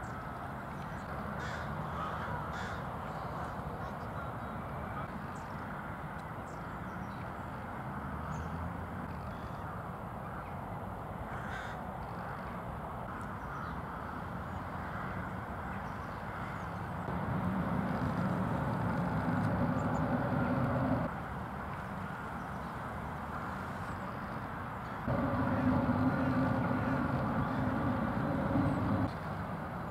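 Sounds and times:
crows cawing: 1.4 - 2.9, 11.3 - 11.8, 14.8 - 15.3, 16.3 - 16.6
low background rumble: 17.1 - 21.1, 25.1 - 29.7.

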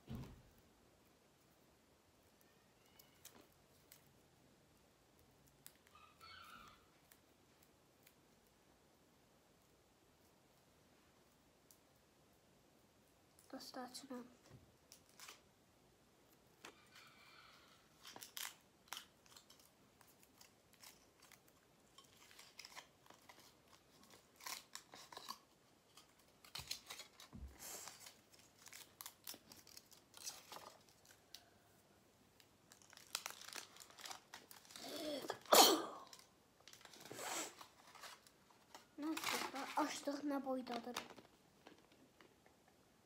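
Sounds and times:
package tearing and crinkling: 14.9 - 15.4, 18.0 - 31.4, 32.7 - 41.2.

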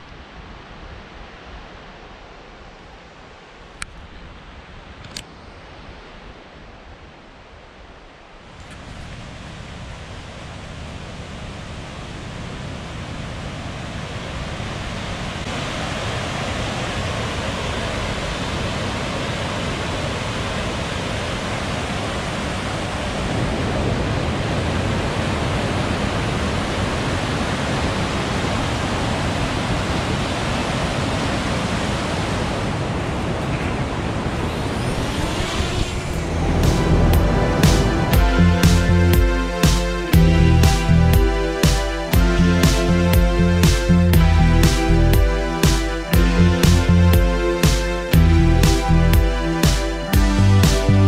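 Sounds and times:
water rushing over waterfall and rapids: 0.0 - 50.9
faint rising whine: 33.2 - 50.0.

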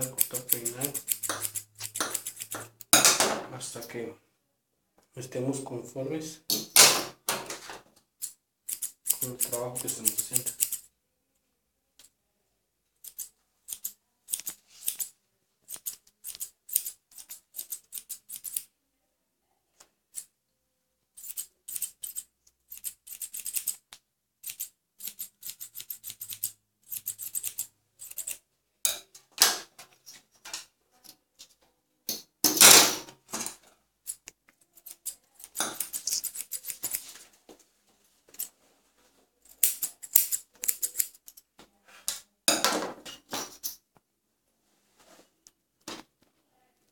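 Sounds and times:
scissors snipping hair: 0.0 - 2.9, 8.2 - 10.9, 13.0 - 15.1, 15.7 - 18.7, 21.2 - 28.4, 34.0 - 37.1, 39.4 - 41.4.

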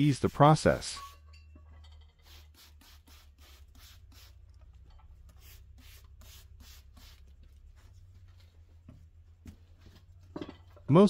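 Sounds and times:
spray bottle squirting: 2.2 - 7.4.

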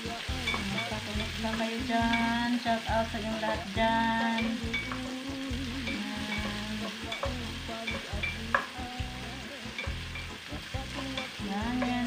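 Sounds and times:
garlic and onion sizzling in a pan: 0.0 - 12.0
spatula scraping and knocking pan: 9.7 - 12.0.

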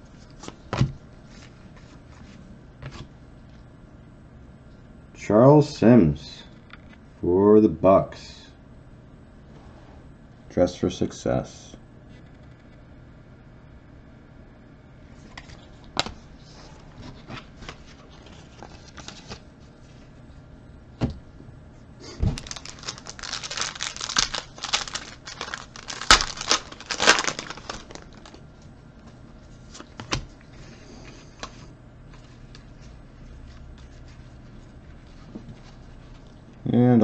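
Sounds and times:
cards and packaging clicking: 22.4 - 28.4
plastic wrapper tearing: 22.4 - 28.4.

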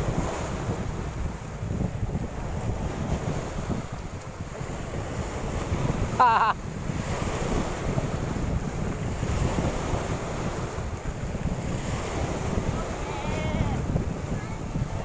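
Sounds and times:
waves washing on shore: 0.0 - 15.0
wind buffeting microphone: 0.0 - 15.0.

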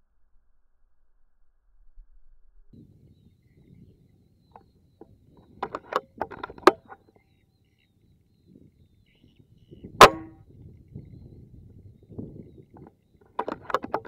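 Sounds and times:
air rifle shot: 10.0 - 10.4.

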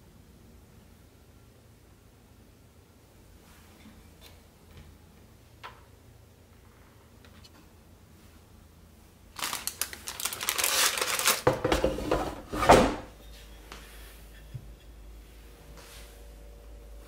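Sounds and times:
paper liner crinkling: 9.3 - 11.6
plastic basket knocking: 11.4 - 13.0.

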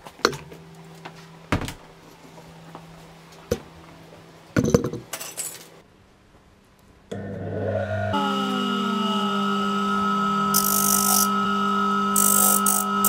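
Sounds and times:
metal pieces clinking on wood: 4.7 - 5.7
disc sander motor humming: 7.2 - 13.0.

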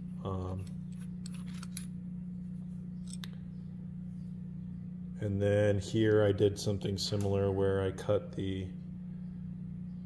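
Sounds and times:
steady low hum: 0.0 - 10.0
metallic clicks and scrapes: 0.6 - 2.0.

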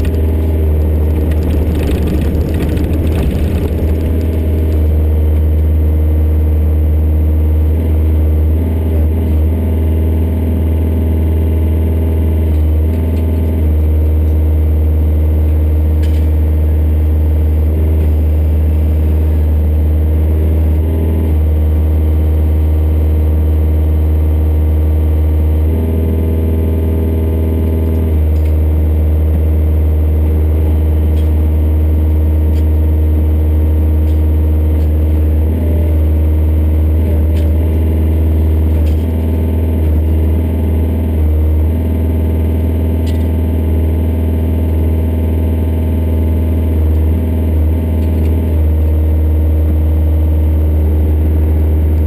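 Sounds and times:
excavator diesel engine humming: 0.0 - 9.7.

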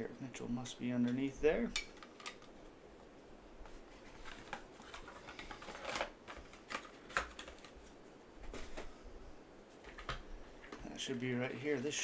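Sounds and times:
cards rustling and sliding: 3.6 - 8.9.

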